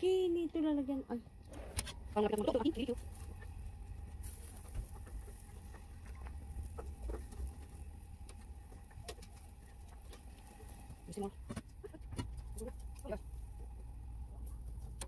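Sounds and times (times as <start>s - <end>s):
low rumble: 1.2s - 15.0s
meat sizzling on a grill: 4.0s - 11.2s.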